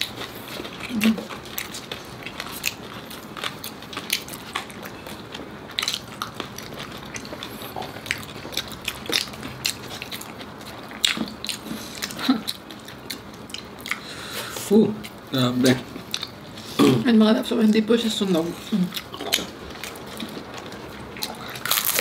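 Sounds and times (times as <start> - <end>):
crunching and chewing crispy pork: 0.0 - 16.8, 18.2 - 22.0.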